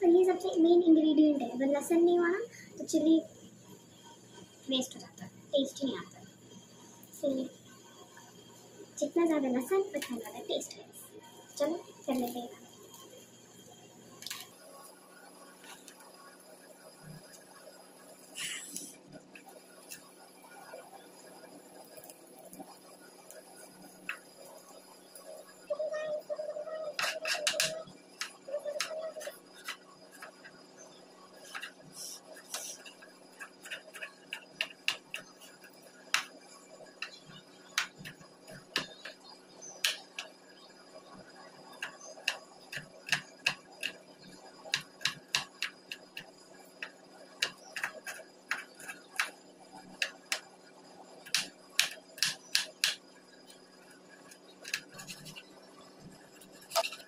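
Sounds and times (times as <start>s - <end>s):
knife chopping on wooden board: 51.3s - 53.0s.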